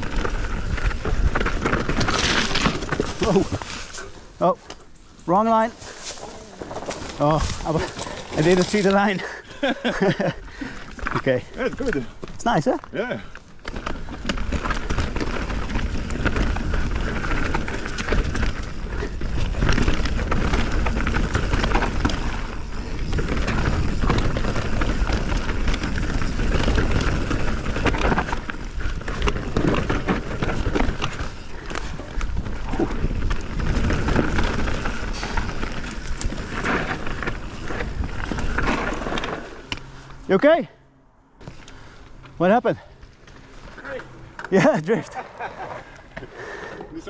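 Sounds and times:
bike tyres rolling over dirt: 0:00.0 - 0:40.7, 0:41.4 - 0:47.0
wind noise on microphone: 0:14.3 - 0:39.3.

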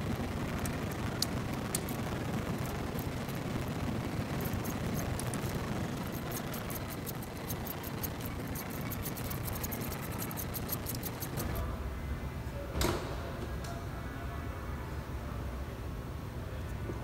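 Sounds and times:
socket ratchet clicking: 0:04.4 - 0:11.6.

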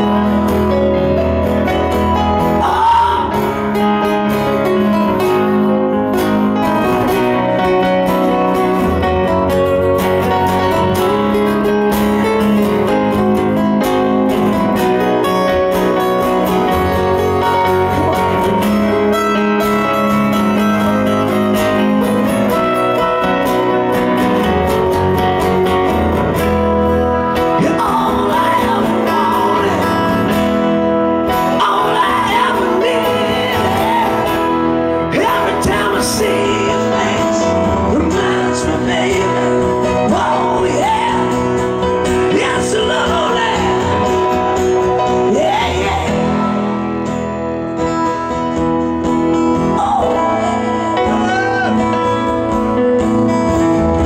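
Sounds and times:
man singing: 0:00.0 - 0:05.8, 0:27.2 - 0:47.1, 0:49.3 - 0:52.5
bass line: 0:00.0 - 0:54.0
strummed acoustic guitar: 0:00.0 - 0:54.0.

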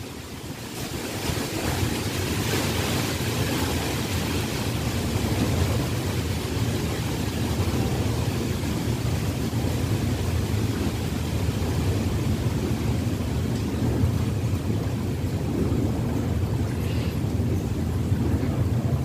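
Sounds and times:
wind on microphone: 0:00.0 - 0:19.0.

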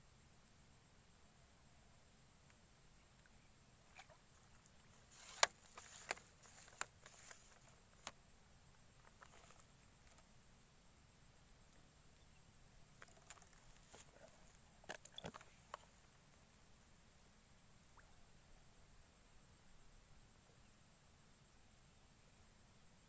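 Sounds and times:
fishing pole clicks and rustles: 0:03.2 - 0:08.2, 0:08.9 - 0:10.3, 0:12.9 - 0:16.0.

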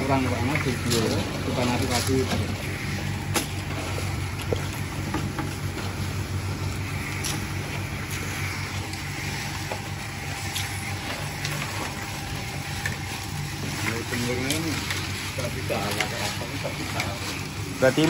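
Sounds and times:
roasting drum machine humming: 0:00.0 - 0:18.0.

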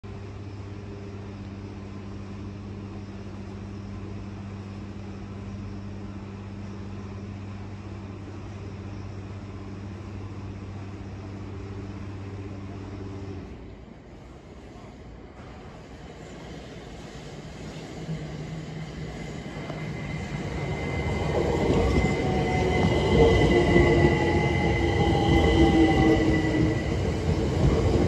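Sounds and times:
low mechanical hum: 0:00.0 - 0:15.6.

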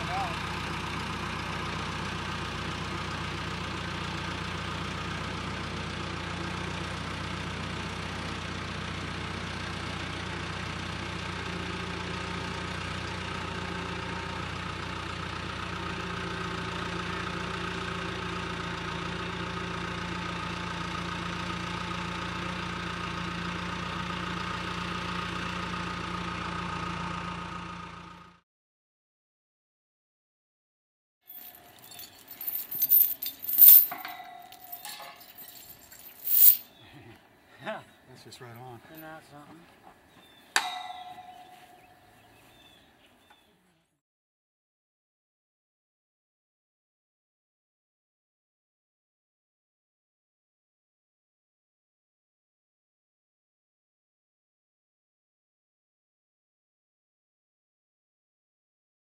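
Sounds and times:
engine running steadily: 0:00.0 - 0:28.4.

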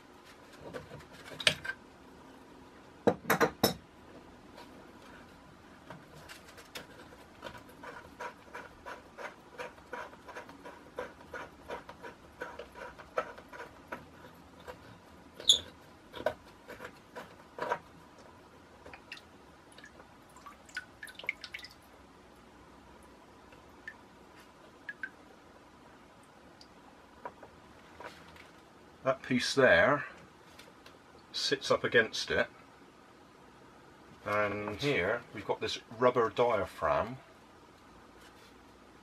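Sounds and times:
fingers scraping plastic: 0:05.9 - 0:18.9.

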